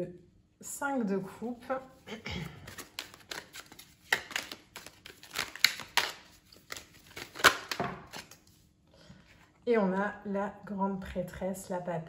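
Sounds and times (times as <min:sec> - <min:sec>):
cards being shuffled: 0:02.5 - 0:08.6.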